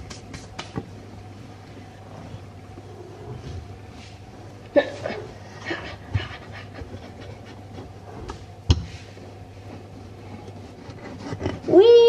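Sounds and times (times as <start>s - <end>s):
rolling pin rolling dough: 5.0s - 12.0s.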